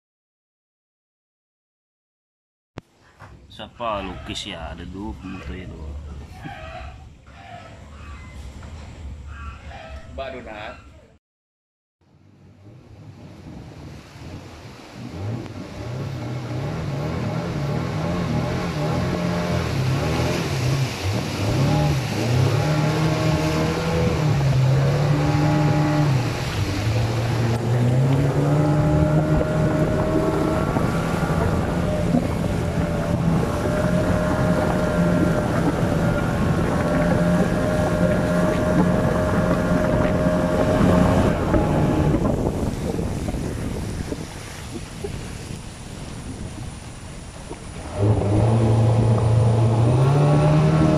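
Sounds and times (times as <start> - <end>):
outboard motor running: 12.2 - 50.9
wind on microphone: 12.5 - 50.9
fast river water rushing: 12.7 - 50.9.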